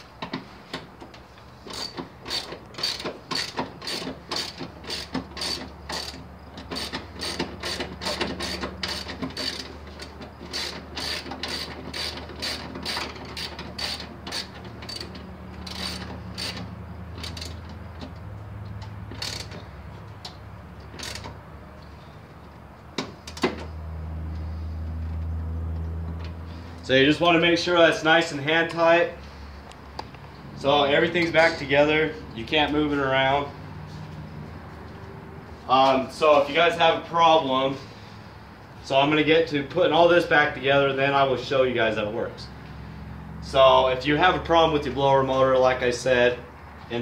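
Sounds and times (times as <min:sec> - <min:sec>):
hand ratchet clicking: 0:01.6 - 0:18.2, 0:18.8 - 0:21.4.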